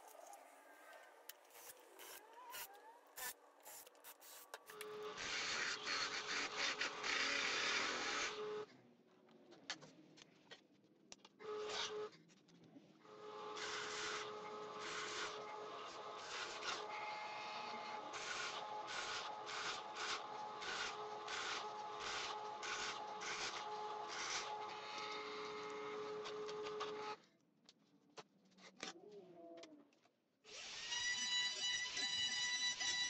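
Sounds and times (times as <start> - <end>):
drill press motor hum: 1.3 - 8.5.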